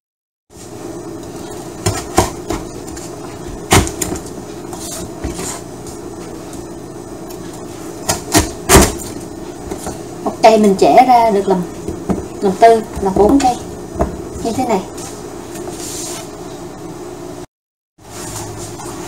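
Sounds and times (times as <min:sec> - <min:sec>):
knife chopping on wooden board: 0:01.8 - 0:02.7, 0:08.1 - 0:09.0.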